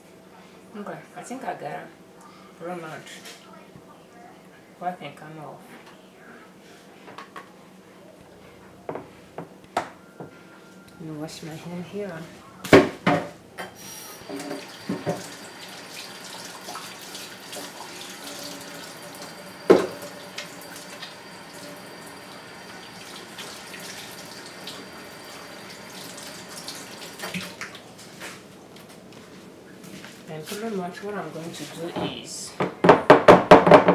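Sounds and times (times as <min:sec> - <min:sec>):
tap running into sink: 0:14.2 - 0:21.2.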